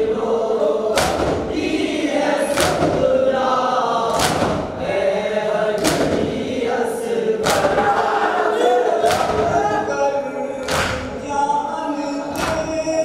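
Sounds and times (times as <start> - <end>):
men chanting together: 0.0 - 13.0
hands slapping chests: 1.0 - 1.5, 2.5 - 3.1, 4.1 - 4.7, 5.8 - 6.4, 7.4 - 8.0, 9.0 - 9.6, 10.6 - 11.1.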